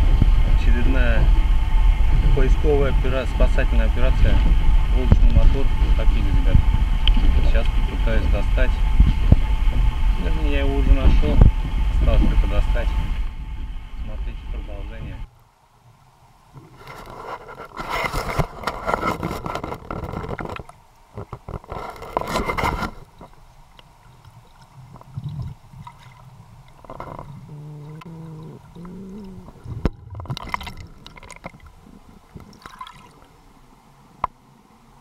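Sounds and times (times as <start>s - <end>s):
muffled pitched sound: 0.0s - 15.3s, 25.1s - 32.6s
underwater gurgling and rushing: 0.0s - 35.0s.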